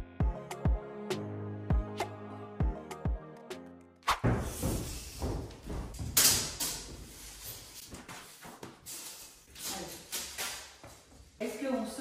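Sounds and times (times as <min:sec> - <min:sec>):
footsteps: 0:04.1 - 0:11.5.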